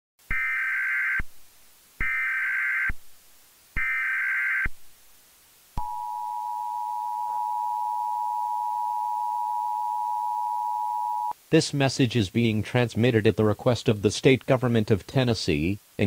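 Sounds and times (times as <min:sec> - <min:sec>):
two-tone attention signal: 0:05.8 - 0:11.3.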